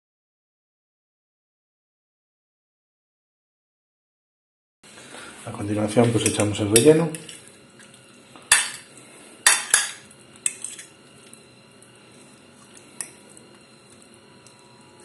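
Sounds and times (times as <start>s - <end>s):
spoon clinking on plate: 8.5s - 11.4s.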